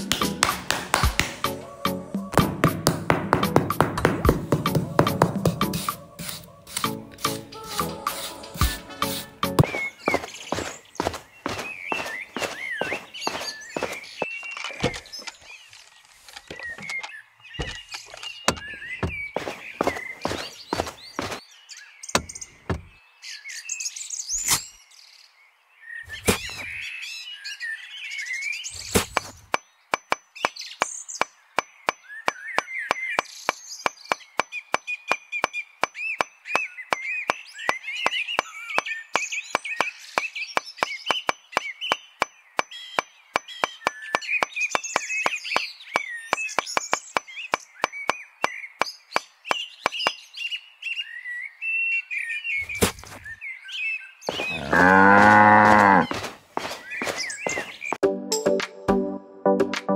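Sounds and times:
small birds chirping: 0.0s - 58.0s
sharp knocks: 2.4s - 5.7s, 18.5s - 21.4s, 22.2s - 22.9s.

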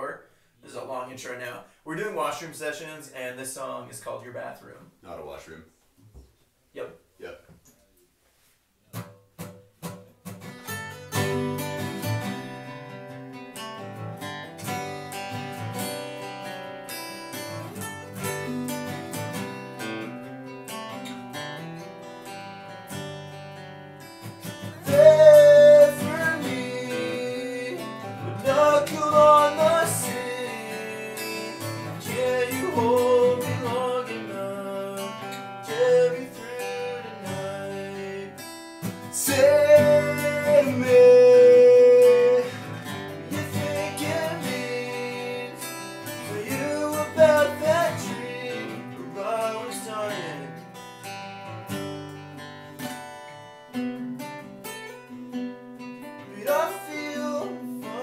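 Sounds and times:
acoustic guitars strummed: 8.9s - 58.0s
person singing: 24.8s - 38.4s, 39.1s - 50.6s, 56.3s - 58.0s.

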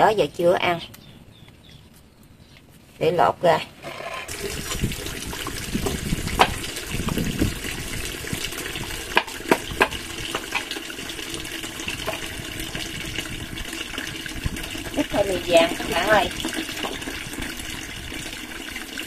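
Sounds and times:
running water hiss: 4.0s - 19.0s.

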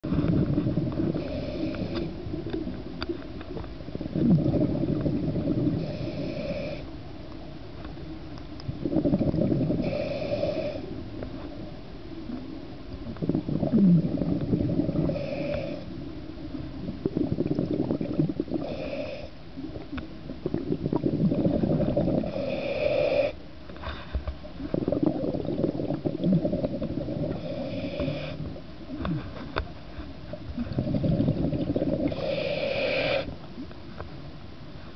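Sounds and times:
exhaust bubbles rumbling: 0.0s - 6.4s, 8.6s - 10.3s, 13.0s - 22.7s, 24.4s - 29.3s, 30.3s - 32.9s
regulator inhale hiss: 1.0s - 2.2s, 5.5s - 6.9s, 9.7s - 11.0s, 14.7s - 16.0s, 21.9s - 23.4s, 27.1s - 28.6s, 31.9s - 33.4s.

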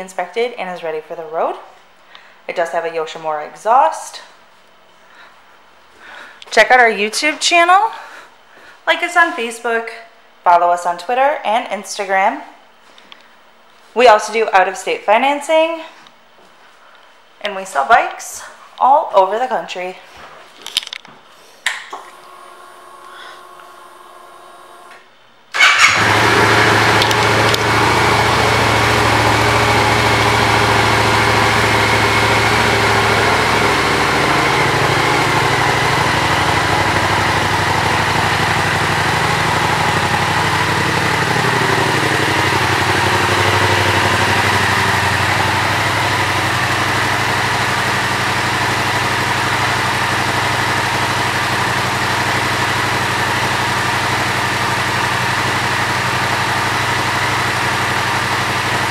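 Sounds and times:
motorcycle engine starting and idling: 21.9s - 58.9s.

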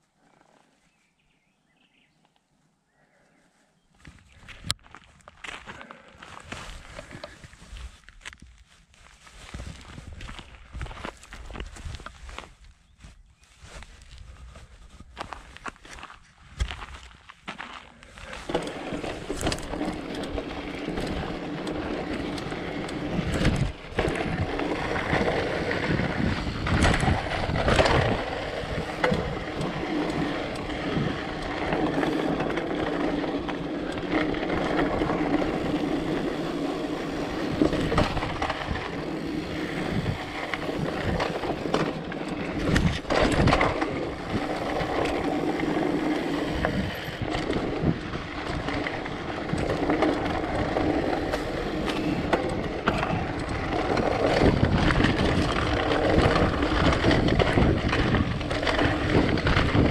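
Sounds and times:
bike tyres on dirt: 2.9s - 59.9s
bike clattering over stones: 17.5s - 59.9s.

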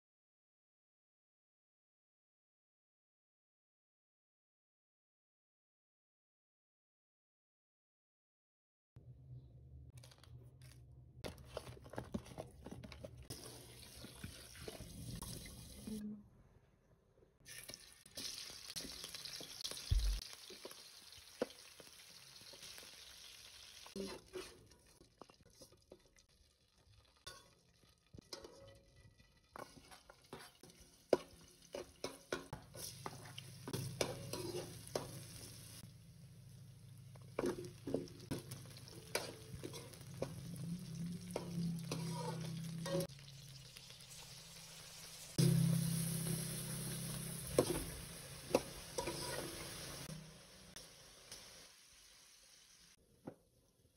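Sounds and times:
food sizzling in oil: 13.3s - 16.0s, 17.5s - 53.0s
metal ladle scraping a wok: 23.9s - 25.0s, 27.3s - 35.8s, 37.4s - 40.6s, 41.2s - 43.1s, 45.4s - 50.2s.

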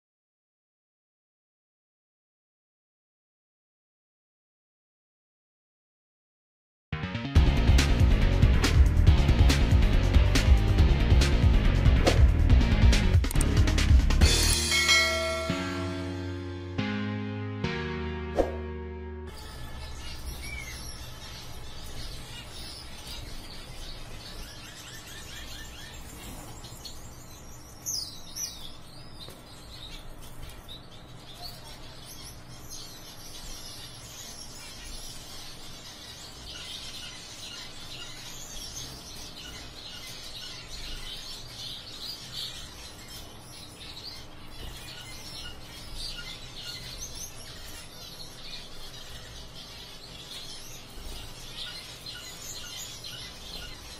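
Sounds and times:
finches chirping: 19.3s - 53.9s.

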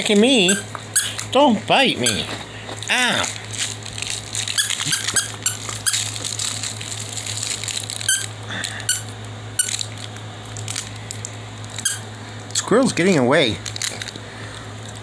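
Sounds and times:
squeaky toy squeaking: 0.4s - 1.2s, 2.0s - 2.2s, 4.6s - 6.0s, 8.1s - 8.3s, 11.8s - 12.0s.

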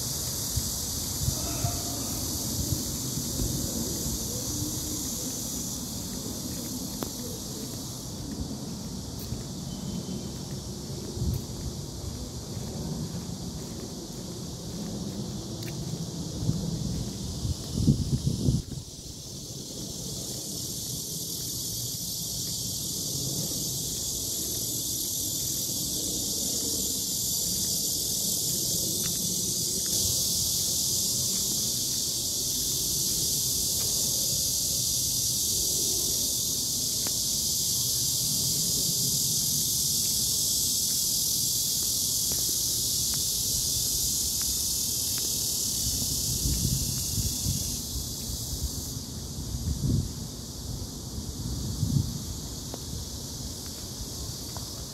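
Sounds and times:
cicadas droning: 0.0s - 54.9s
wind on microphone: 15.9s - 20.3s, 45.8s - 52.5s.

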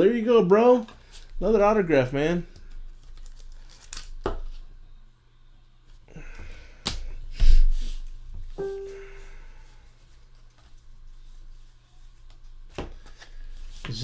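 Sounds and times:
short steady tone: 8.6s - 9.4s.

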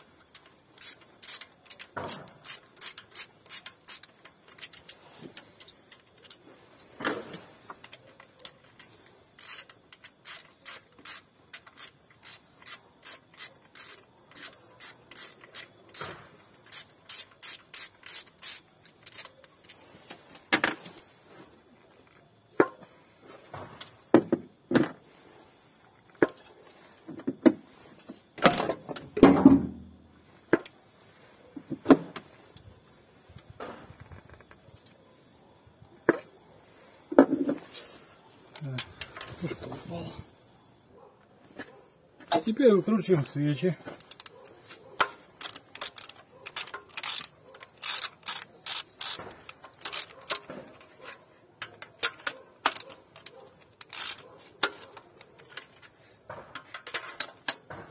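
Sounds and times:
hand ratchet clicking: 0.0s - 6.4s, 7.8s - 19.8s, 44.0s - 55.9s
knocks and scraping of parts: 0.0s - 35.3s, 36.0s - 40.2s, 41.3s - 57.9s.

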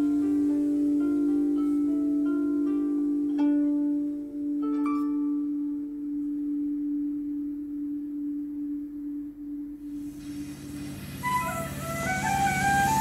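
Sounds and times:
low drone music: 0.0s - 13.0s.

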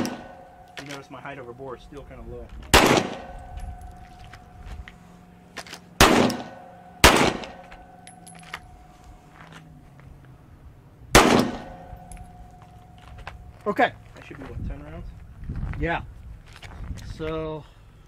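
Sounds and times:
handgun shots: 0.0s - 1.0s, 2.7s - 3.7s, 6.0s - 7.9s, 11.2s - 12.2s.

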